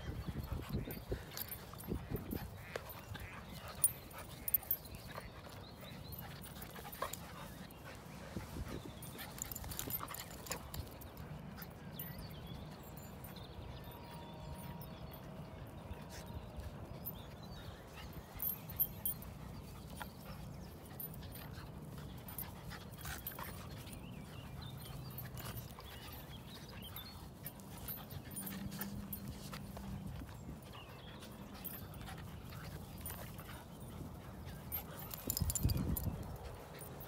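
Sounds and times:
dogs panting: 0.0 - 37.0.

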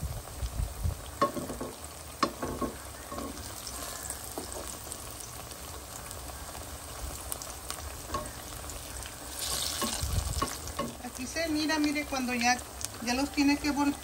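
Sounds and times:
slices sizzling in hot oil: 0.0 - 14.0.

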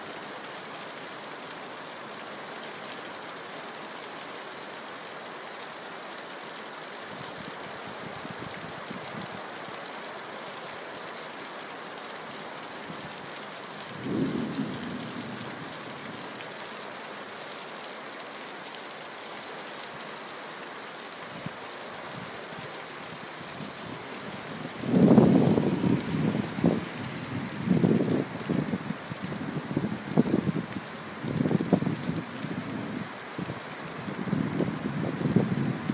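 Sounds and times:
heavy rain falling: 0.0 - 35.9
thunder clap rumbling: 24.8 - 28.1.

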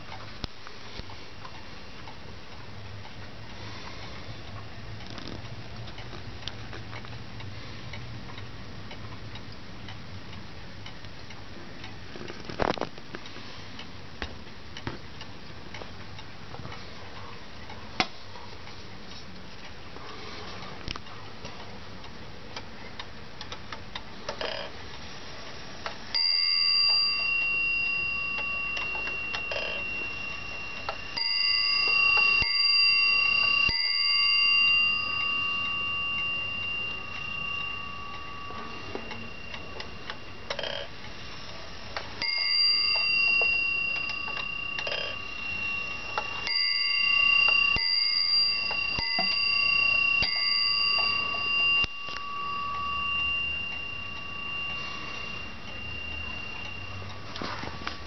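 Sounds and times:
clock movement clicking and ticking: 0.0 - 58.0
wall clock bell striking: 26.2 - 41.0, 42.0 - 58.0.

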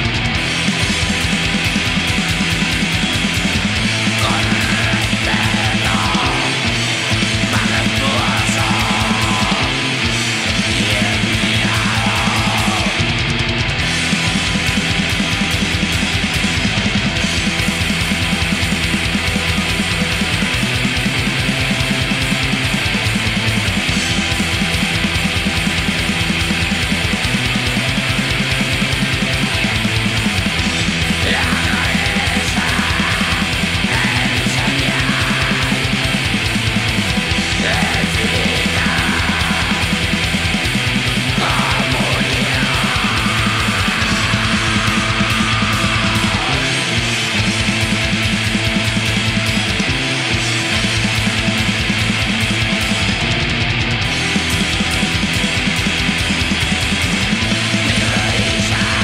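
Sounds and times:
distorted guitars and bass: 0.0 - 59.0
very fast dense drumming: 0.0 - 59.0.

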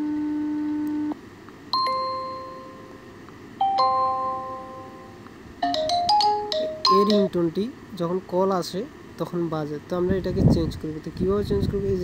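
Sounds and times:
bell-like chime: 1.8 - 3.0, 3.6 - 7.3
two-note ding-dong chime: 1.8 - 7.3.

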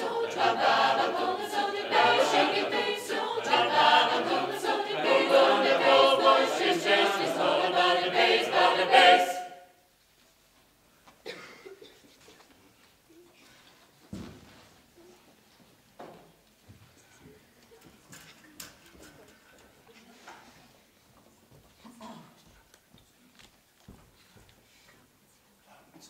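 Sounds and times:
choir singing a cappella: 0.0 - 9.8.

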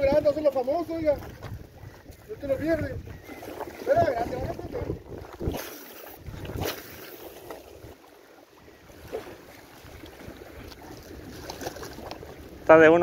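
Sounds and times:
wind rumbling on microphone: 0.0 - 8.0.

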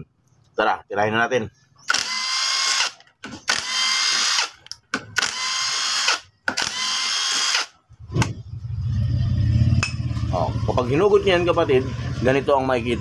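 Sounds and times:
impact driver running: 1.9 - 7.7.

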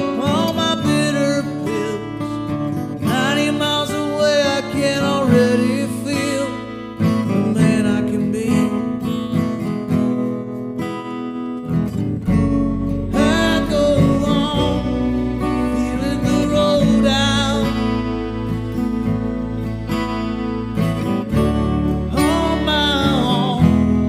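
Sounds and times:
acoustic guitar strumming: 0.0 - 24.0
deep bass: 12.2 - 24.0.

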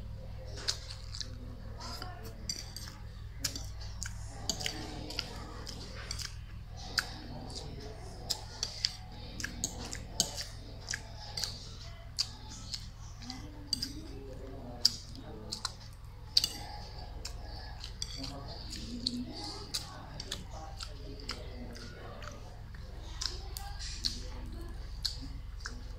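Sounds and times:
chewing: 0.0 - 25.9
fork scraping a plate: 14.9 - 19.0.

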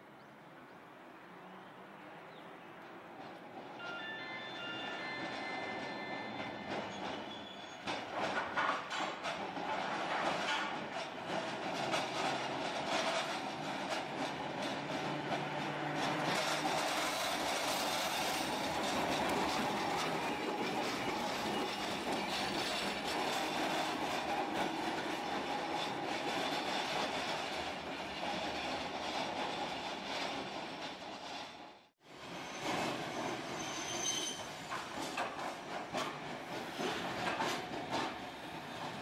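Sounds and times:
streetcar wheels clattering on rails: 2.6 - 39.0
high wheel squeal: 3.8 - 8.0, 32.2 - 34.9.

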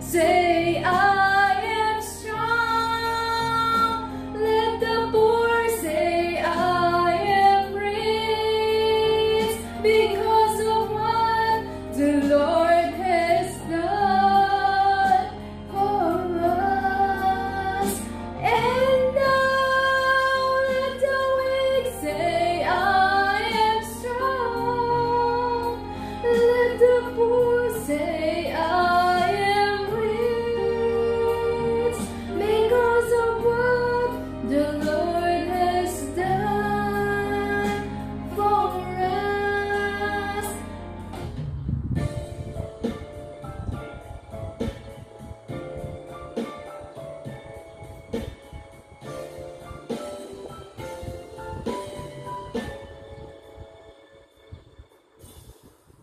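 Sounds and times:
woman singing into a microphone: 0.0 - 40.8.

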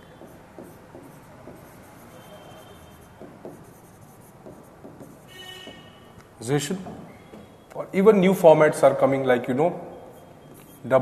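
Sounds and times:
stylus tapping and scratching screen: 0.1 - 6.0.

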